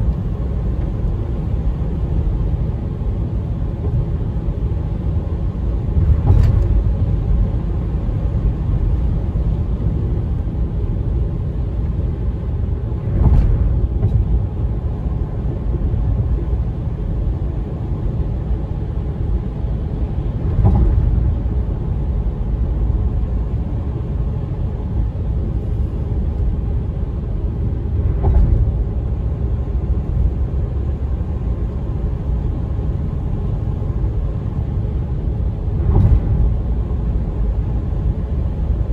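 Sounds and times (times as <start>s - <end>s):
car tyres and engine rumble: 0.0s - 38.9s
brief thump: 20.5s - 21.2s, 28.2s - 28.7s, 35.8s - 36.5s.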